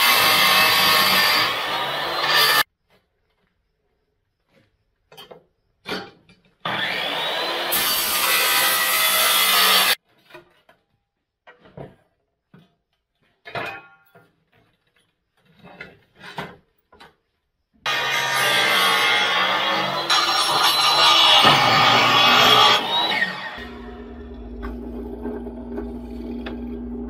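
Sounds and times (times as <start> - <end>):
miter saw cutting wood: 0.0 - 2.7, 6.6 - 10.0, 17.9 - 27.0.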